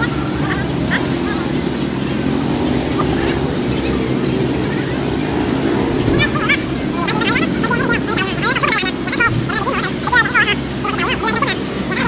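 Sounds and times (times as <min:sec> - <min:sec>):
engine running with low rumble: 0:00.0 - 0:12.0
faint voices: 0:00.0 - 0:12.0.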